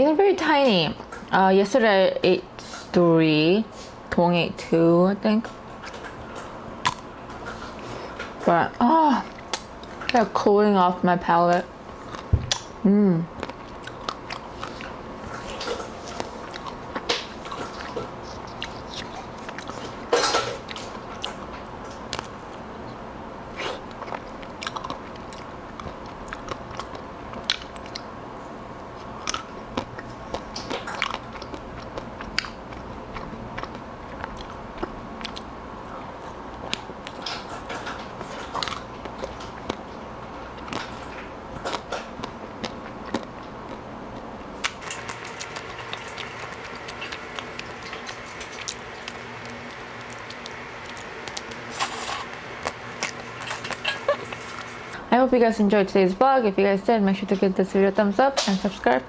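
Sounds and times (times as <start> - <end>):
soft chewing: 11.9 - 12.7, 13.4 - 55.0
biting crunchy ice cream coating: 23.6 - 28.1, 29.2 - 35.5, 36.6 - 39.8, 40.5 - 55.0.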